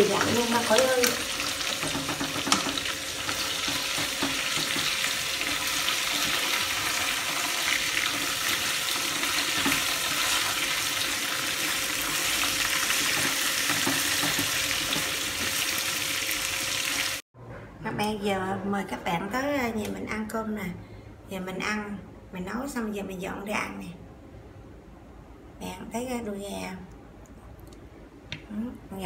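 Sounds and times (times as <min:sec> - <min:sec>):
chicken sizzling in oil: 0:00.0 - 0:17.2
chopsticks knocking: 0:01.7 - 0:05.0.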